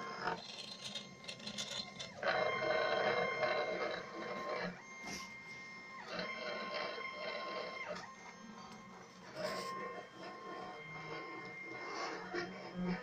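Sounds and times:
stepper motors whining: 0.0 - 13.0.

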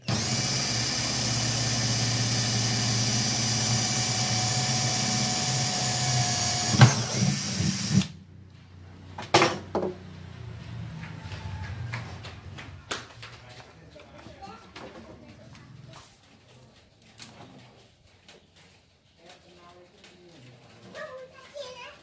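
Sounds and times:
cordless drill boring into wood: 0.0 - 8.2.

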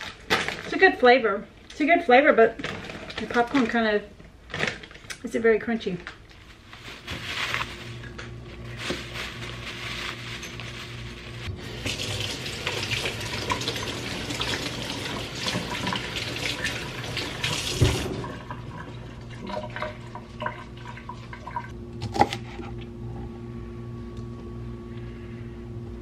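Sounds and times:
faucet running water: 11.5 - 21.7.

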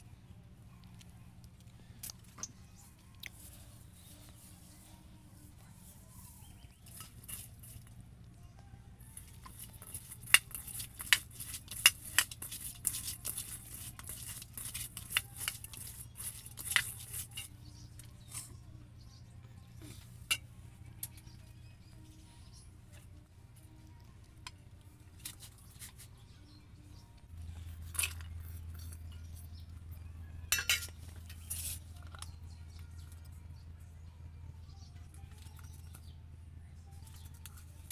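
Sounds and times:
clinks on steel bowl: 30.5 - 31.0.

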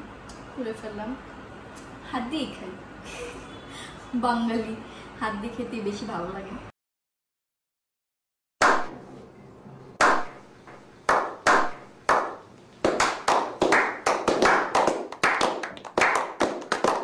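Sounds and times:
group hand clapping: 8.6 - 9.0, 10.0 - 17.0.

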